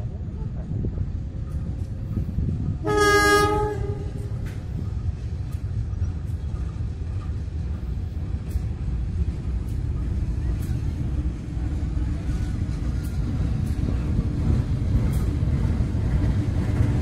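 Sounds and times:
wind noise: 0.0s - 17.0s
locomotive horn blast: 2.8s - 4.4s.

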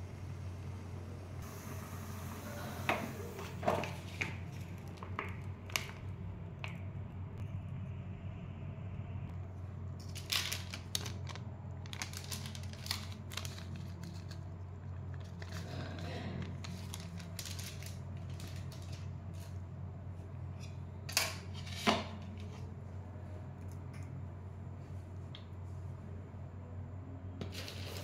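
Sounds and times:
steady low hum: 0.0s - 28.0s
plastic packet crinkling: 10.0s - 15.8s, 16.4s - 19.5s.

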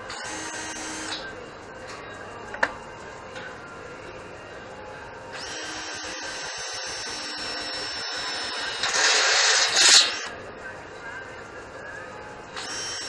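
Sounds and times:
cordless drill boring into steel: 5.4s - 10.3s, 12.6s - 13.0s.

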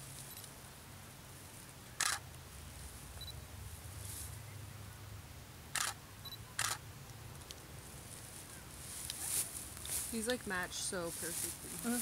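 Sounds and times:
camera shutter clicks: 2.0s - 2.2s, 5.8s - 6.8s.

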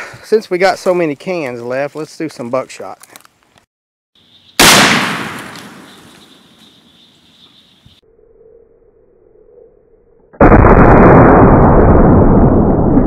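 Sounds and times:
shotgun blast with echo: 4.6s - 6.1s.

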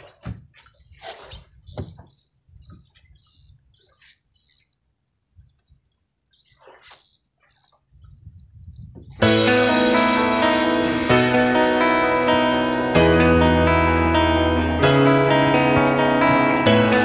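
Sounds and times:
line clicking and scraping: 0.0s - 9.2s.

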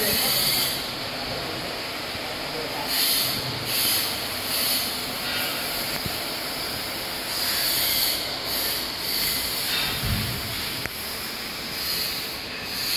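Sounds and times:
machinery hissing: 0.0s - 12.9s
short low thump: 10.0s - 10.5s.

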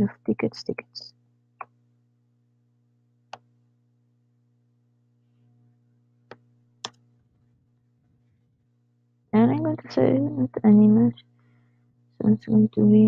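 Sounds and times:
faint low hum: 0.0s - 13.0s
computer mouse clicks: 6.3s - 7.0s.

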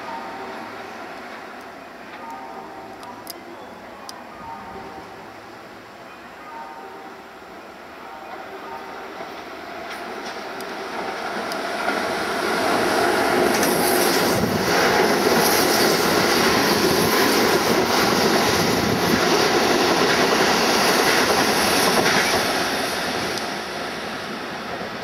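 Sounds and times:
train wheels rumbling on rails: 8.3s - 25.0s.

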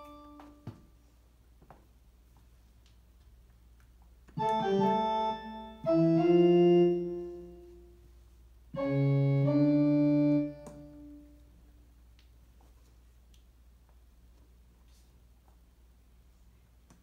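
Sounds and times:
digital piano chords: 0.0s - 0.6s, 4.4s - 8.0s, 8.7s - 11.4s.

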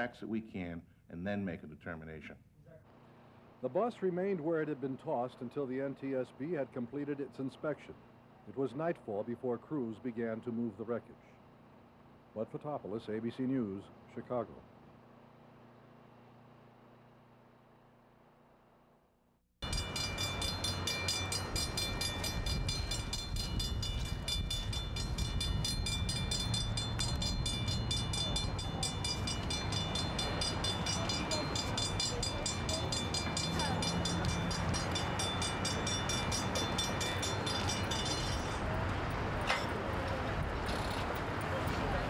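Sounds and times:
crossing warning bell ringing: 19.6s - 42.0s
train rumbling past: 19.6s - 42.0s.

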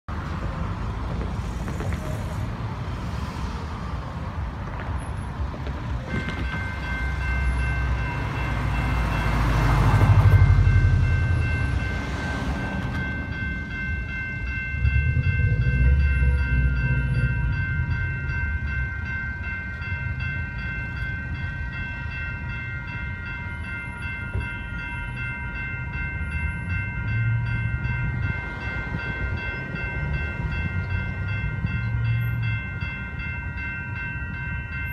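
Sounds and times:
car passing: 0.1s - 19.0s
railway crossing bells ringing: 2.2s - 34.9s.

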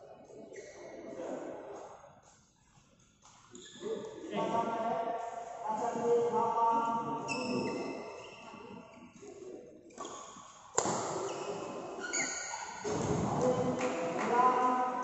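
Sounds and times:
shoes squeaking on floor: 3.3s - 4.1s, 7.1s - 13.8s
racket striking shuttlecock: 10.8s - 11.2s.

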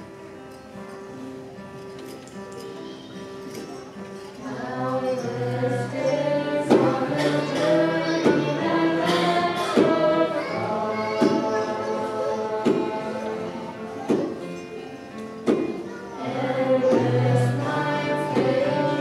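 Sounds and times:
musical accompaniment: 3.4s - 19.0s
choir singing: 4.4s - 14.0s, 16.2s - 19.0s.

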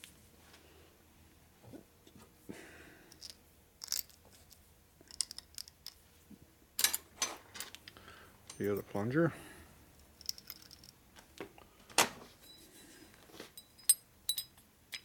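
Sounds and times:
small metal parts clicking: 3.1s - 6.0s, 10.1s - 11.0s, 13.7s - 15.0s.

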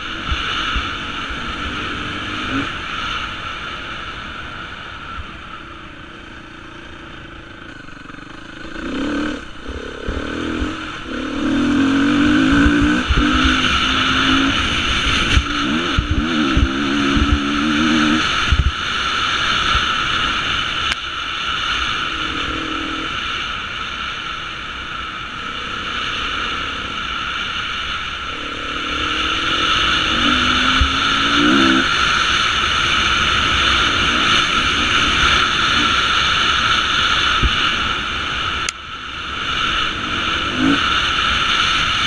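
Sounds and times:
motorcycle engine revving: 0.0s - 42.0s
wind rushing: 8.8s - 19.0s.

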